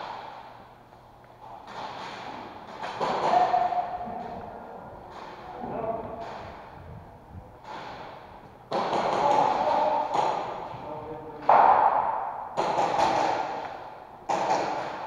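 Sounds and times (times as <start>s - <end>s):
airsoft guns firing in bursts: 8.7s - 10.3s, 11.5s - 13.7s
pellets rapping on plywood: 8.7s - 10.7s, 12.6s - 13.7s, 14.3s - 15.0s.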